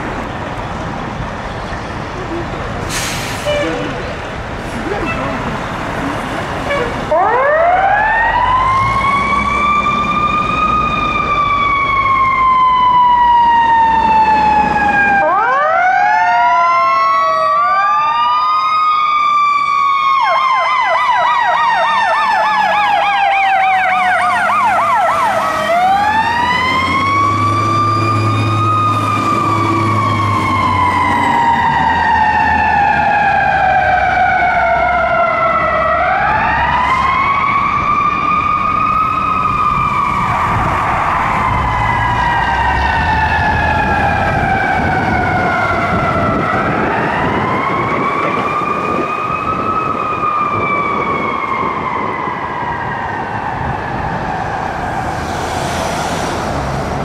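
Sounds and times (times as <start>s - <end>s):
fire truck siren wailing: 0.0s - 57.0s
second siren: 6.6s - 56.6s.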